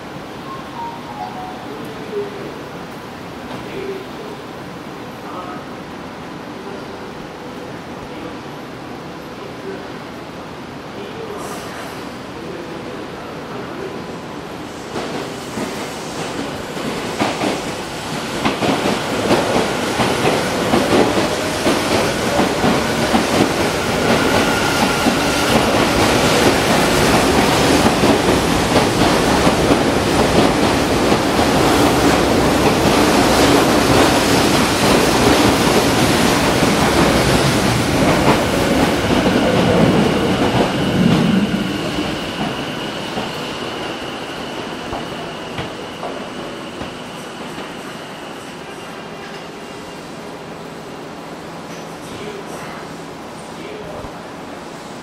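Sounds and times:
train wheels knocking on rail joints: 18.4 - 41.2.

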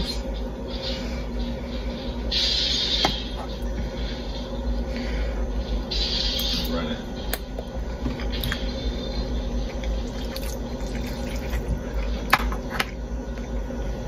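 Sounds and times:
steady low hum: 0.0 - 14.0
person chewing food: 9.6 - 12.3.

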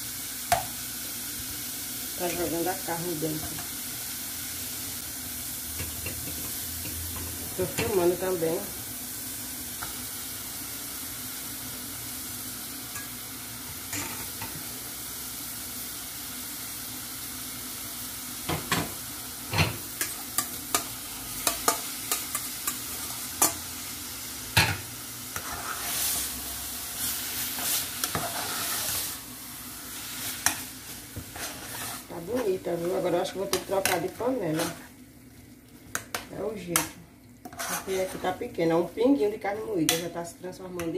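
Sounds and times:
vegetables sizzling in a pot: 0.0 - 40.9
spoon knocking and scraping a pot: 0.5 - 0.7, 5.8 - 8.0, 27.6 - 29.0, 36.8 - 38.3.

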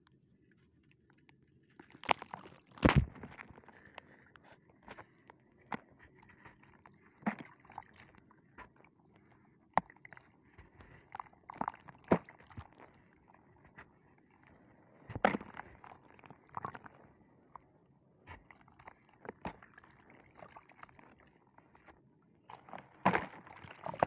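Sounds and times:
crumbling grit crackle: 0.6 - 8.8
sharp crunches: 2.0 - 3.6.

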